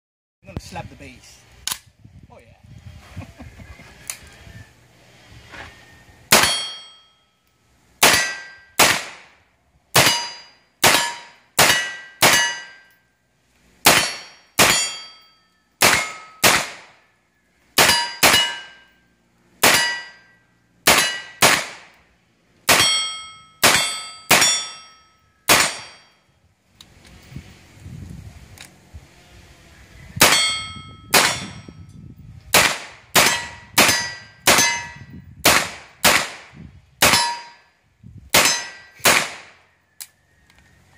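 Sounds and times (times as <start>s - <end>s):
pistol shots with metallic ring: 6.3s - 7.2s, 8.0s - 9.3s, 9.9s - 13.0s, 13.8s - 16.9s, 17.8s - 19.0s, 19.6s - 22.0s, 22.7s - 26.2s, 30.2s - 31.8s, 32.5s - 37.7s, 38.3s - 39.6s.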